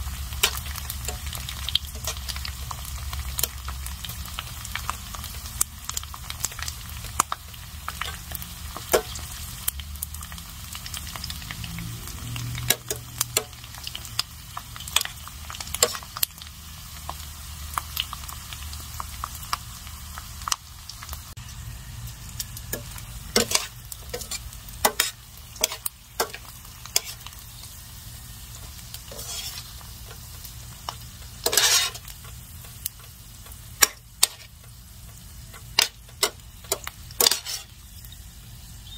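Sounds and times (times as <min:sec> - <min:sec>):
squid sizzling in oil: 0:00.0 - 0:38.9
metal tongs tapping a pan: 0:00.4 - 0:02.3, 0:08.8 - 0:09.2, 0:12.6 - 0:13.6, 0:15.7 - 0:16.3, 0:22.7 - 0:27.2, 0:33.4 - 0:34.5, 0:35.5 - 0:37.7.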